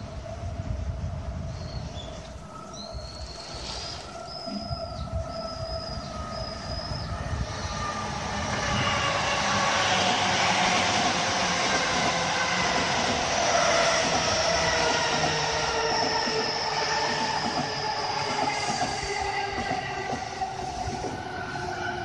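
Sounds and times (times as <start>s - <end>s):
electric train passing: 2.4s - 22.0s.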